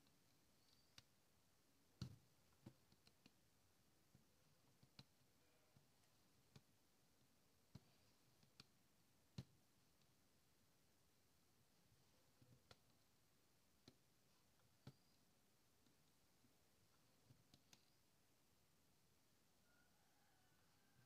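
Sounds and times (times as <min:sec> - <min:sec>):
embroidery needle clicks and taps: 0:14.6 - 0:15.2.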